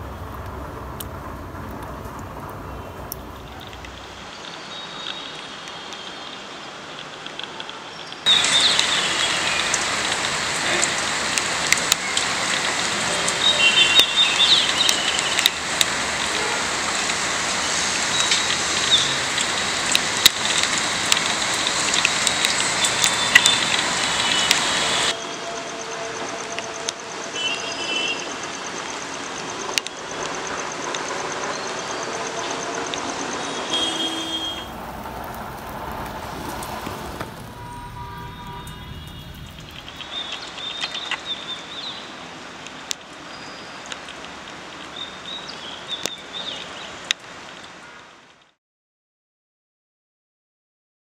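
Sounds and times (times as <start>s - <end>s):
rain falling: 0.0s - 48.5s
bird chirps: 37.4s - 42.1s.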